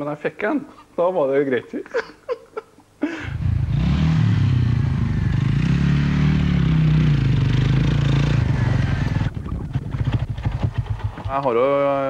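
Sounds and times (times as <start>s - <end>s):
vehicle engine running at low revs: 3.4s - 11.4s.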